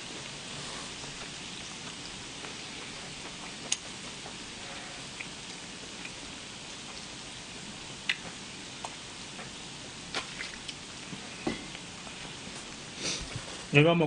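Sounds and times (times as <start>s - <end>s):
meat sizzling on a griddle: 0.1s - 10.1s.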